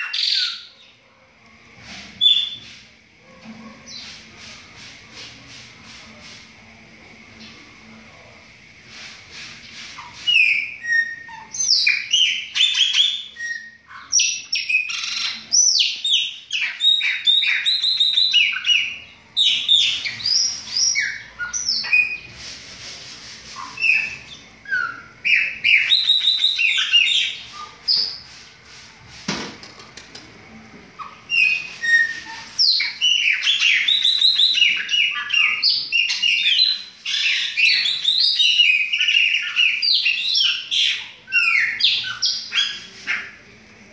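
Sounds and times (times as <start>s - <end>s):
blackbirds singing: 0.0s - 1.0s, 9.6s - 22.4s, 23.5s - 28.4s, 31.0s - 43.5s.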